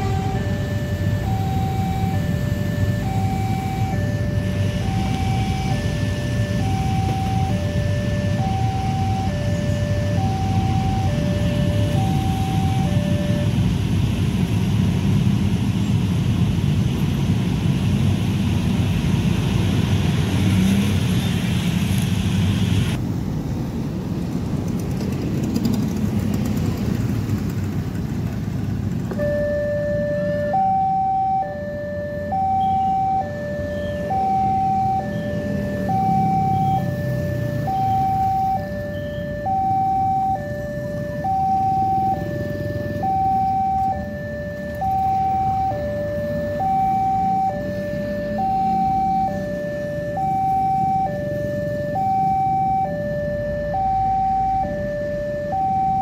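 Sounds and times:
level crossing two-tone alarm: 0.0s - 13.7s, 29.2s - 56.0s
motorcycle and car engines running: 0.0s - 30.6s.

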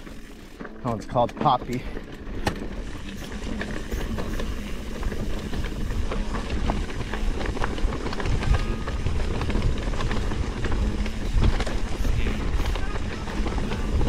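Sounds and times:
bike chain and frame rattling: 0.0s - 14.0s
tyres rolling over dirt and stones: 0.0s - 14.0s
wind rumble on microphone: 2.8s - 14.0s.

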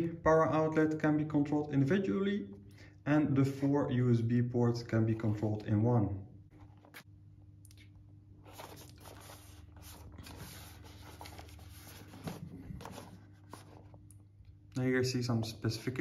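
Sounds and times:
cardboard box handled and rubbing: 8.5s - 14.0s.

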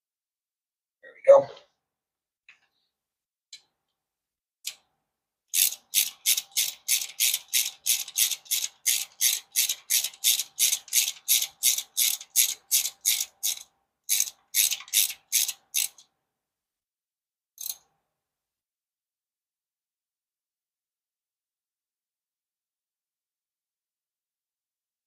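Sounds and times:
hand ratchet clicking: 5.5s - 16.0s.

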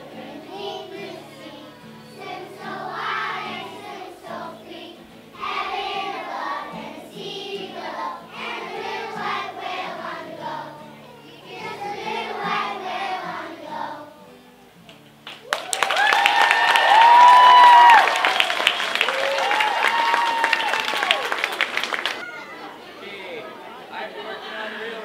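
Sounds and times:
children's choir singing: 0.0s - 14.4s.

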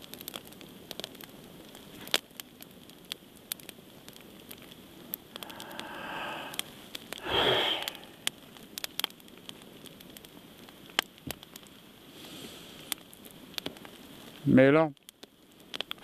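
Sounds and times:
campfire crackling and popping: 0.0s - 16.0s
man breathing: 5.3s - 8.3s
loud sniff: 5.4s - 8.3s.

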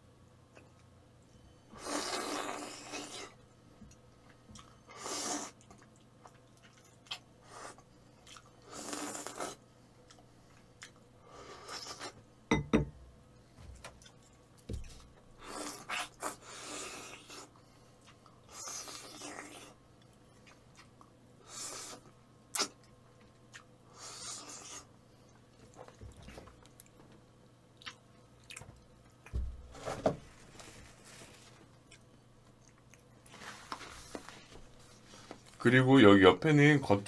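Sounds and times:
person slurping noodles: 1.8s - 3.4s, 4.9s - 5.6s, 8.7s - 9.6s, 18.5s - 19.8s, 24.0s - 24.9s
chewing: 5.4s - 11.0s, 14.0s - 21.1s, 27.8s - 29.3s, 31.8s - 33.3s.

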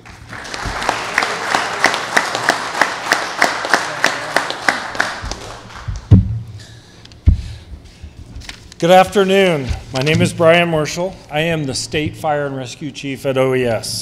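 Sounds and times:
audience applauding: 0.0s - 6.1s
person's sharp claps: 0.0s - 6.1s
dull thumps: 5.9s - 6.6s, 7.2s - 8.5s.

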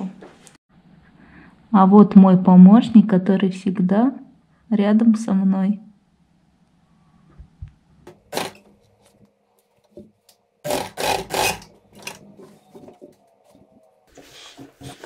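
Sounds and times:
sewing machine stitching: 8.3s - 8.7s, 10.7s - 12.2s.

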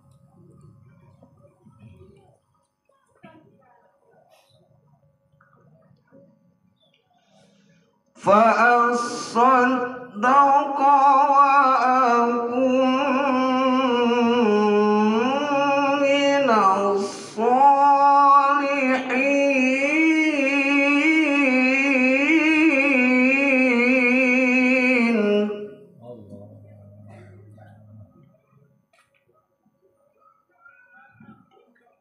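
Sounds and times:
man chanting religious recitation: 8.2s - 28.3s.

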